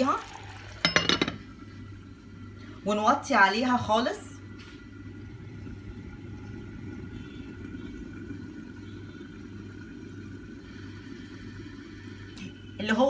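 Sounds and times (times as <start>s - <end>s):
low hum: 0.2s - 13.0s
pot bubbling under lid: 4.8s - 13.0s.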